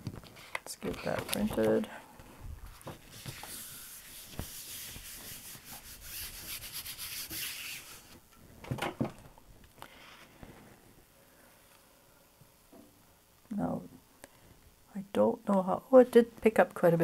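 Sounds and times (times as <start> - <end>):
burnisher rubbing on paper: 3.0 - 8.2.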